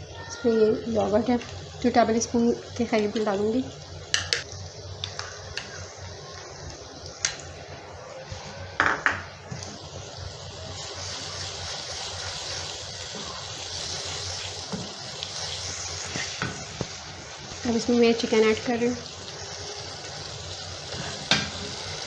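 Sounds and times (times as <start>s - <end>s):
masala sizzling in oil: 0.0s - 22.0s
knocks on the pan: 8.8s - 9.3s.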